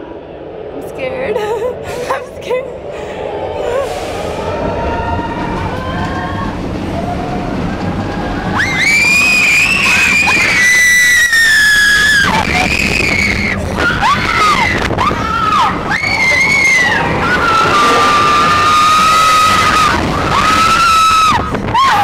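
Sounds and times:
roller coaster rumbling on track: 0.0 - 22.0
riders screaming: 8.5 - 22.0.

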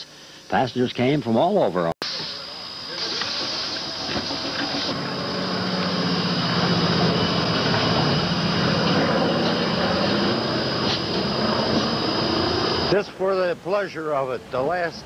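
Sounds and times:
electric railcar humming and rumbling: 3.0 - 12.9.

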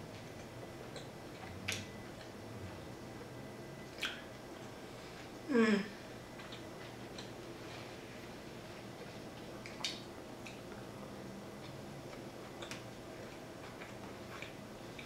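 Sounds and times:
low steady hum: 0.0 - 15.0
mouth clicks and smacks chewing: 3.9 - 4.3, 9.6 - 10.8, 11.6 - 15.0.

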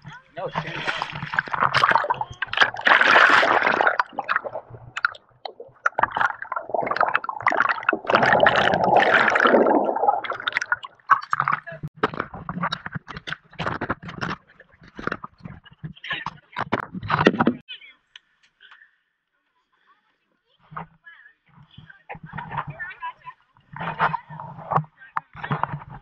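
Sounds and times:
river water splashing around raft: 0.6 - 4.8
sharp splashes and knocks: 0.6 - 14.4.

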